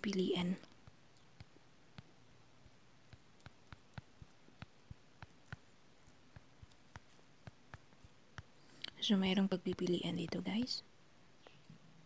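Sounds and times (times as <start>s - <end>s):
fingertip taps on touchscreen: 0.8s - 8.5s.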